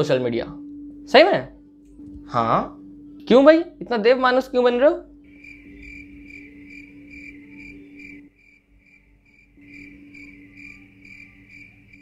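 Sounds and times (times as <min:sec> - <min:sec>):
steady low hum: 0:00.0 - 0:12.0
crickets chirping: 0:04.5 - 0:12.0.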